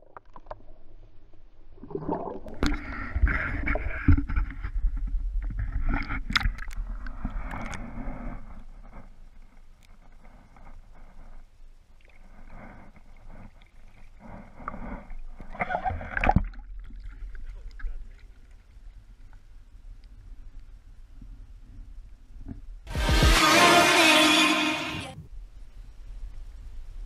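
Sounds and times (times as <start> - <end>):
water sloshing and gurgling: 0.0 - 20.4.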